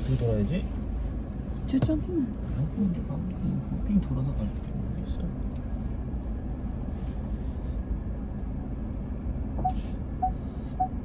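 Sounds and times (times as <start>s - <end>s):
car engine and tyre rumble: 0.0s - 11.0s
turn signal ticking: 9.6s - 11.0s.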